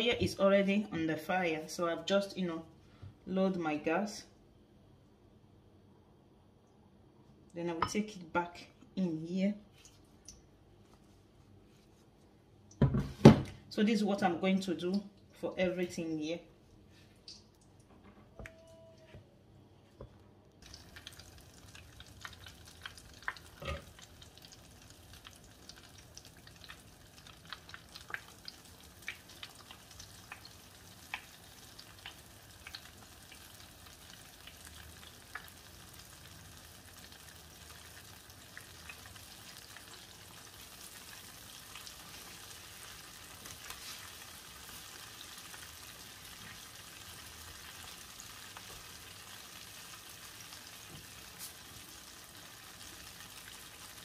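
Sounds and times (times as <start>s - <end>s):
chicken deep-frying in oil: 20.6s - 54.0s.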